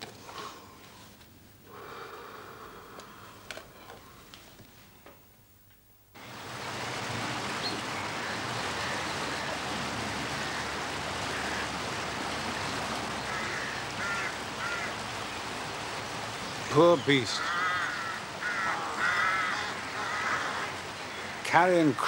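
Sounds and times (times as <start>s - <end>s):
river water rushing over weir: 6.2s - 22.0s
faint crow caws: 8.0s - 12.4s, 13.0s - 15.6s, 17.1s - 21.5s.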